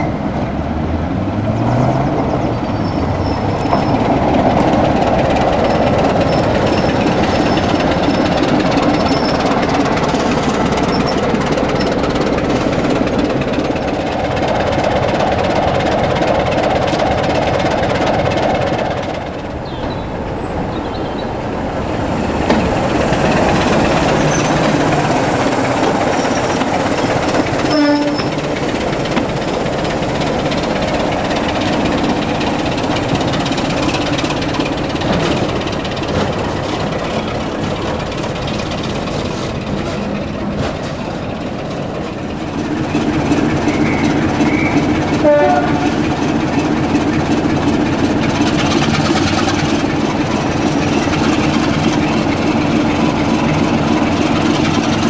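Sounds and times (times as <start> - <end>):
diesel locomotive engine running: 0.0 - 55.0
locomotive horn blast: 27.6 - 28.4, 43.7 - 46.1.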